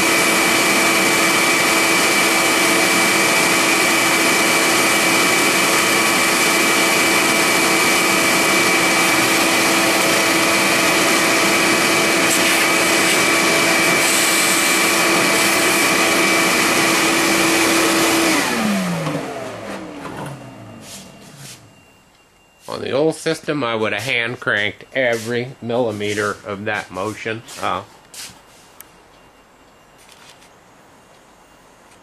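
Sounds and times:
vacuum motor winding down: 0.0 - 21.8
shop vacuum whining: 0.0 - 32.0.

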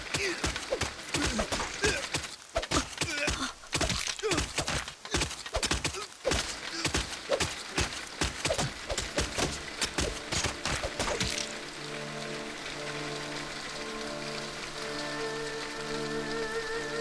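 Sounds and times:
rapid thuds and knocks: 0.0 - 11.6
heavy rain hissing: 0.0 - 17.0
soft music: 9.1 - 17.0.

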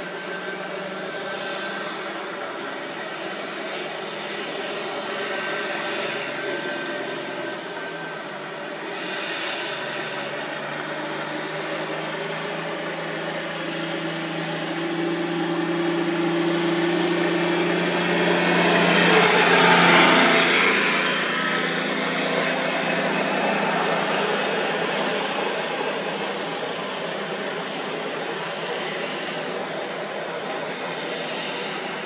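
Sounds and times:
vehicle engine running: 10.0 - 31.9.

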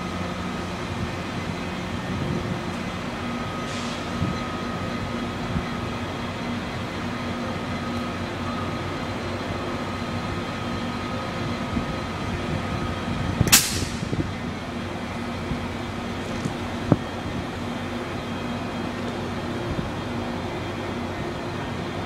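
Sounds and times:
train rumbling: 0.0 - 22.0
sharp loud burst of noise: 13.5 - 14.2.

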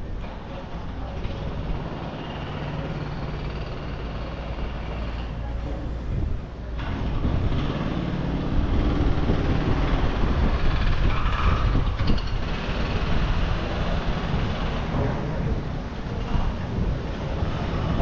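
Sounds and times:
traffic rumble: 0.0 - 18.0.

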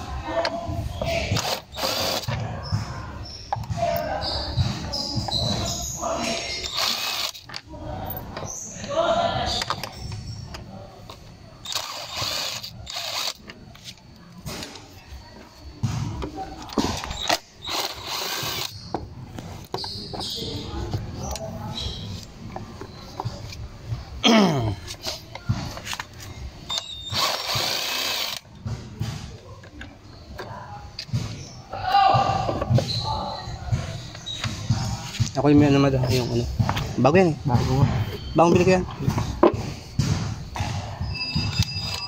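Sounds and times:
cordless drill running: 1.4 - 2.3, 6.6 - 7.4, 11.7 - 13.4, 27.1 - 28.4.

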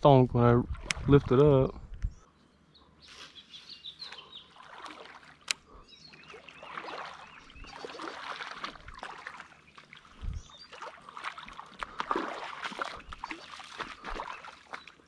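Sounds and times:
birds chirping: 1.0 - 15.0
river water splashing: 3.8 - 15.0.

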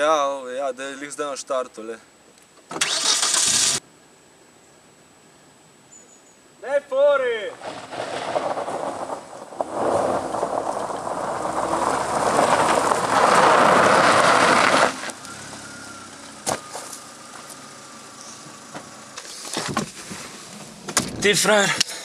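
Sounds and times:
tyres crunching on gravel: 7.5 - 21.7
car engine running quietly: 15.0 - 20.2.

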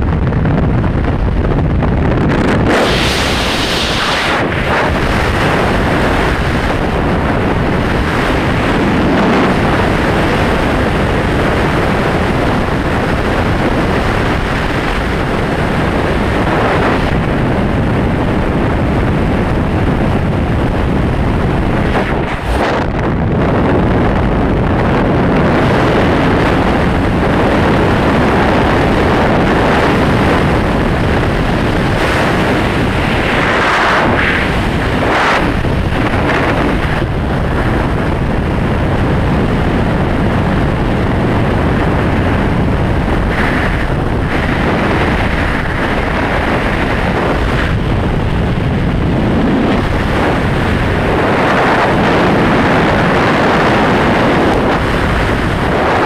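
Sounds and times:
wind blasting over microphone: 0.0 - 56.0.

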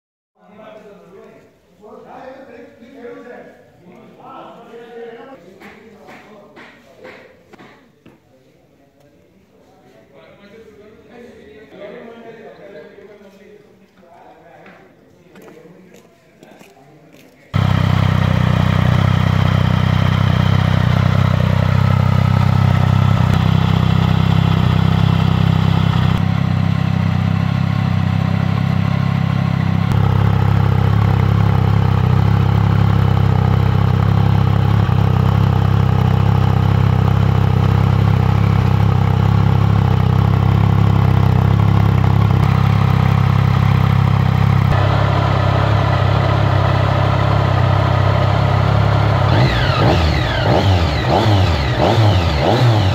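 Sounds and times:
motorcycle engine idling: 17.6 - 52.9.

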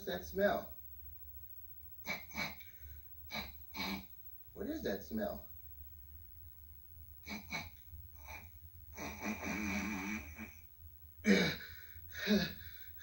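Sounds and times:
steady low hum: 0.0 - 13.0
loud snort: 2.0 - 4.1, 7.2 - 10.6.

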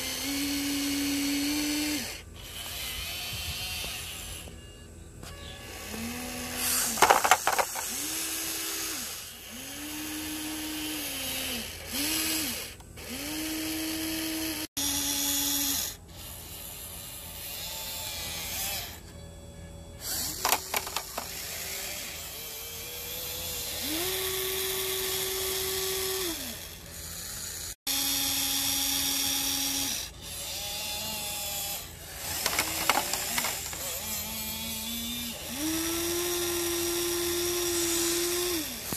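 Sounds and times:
small electric motors whining: 0.0 - 38.9.

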